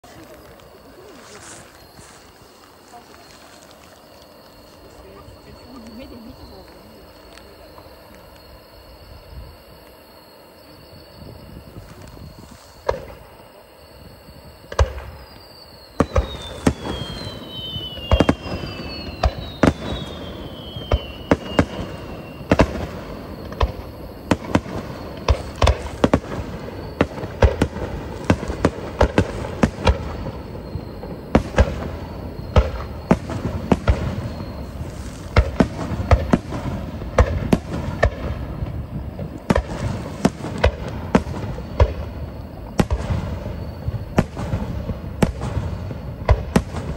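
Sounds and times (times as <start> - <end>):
firework whistles falling in pitch: 14.0 - 46.9.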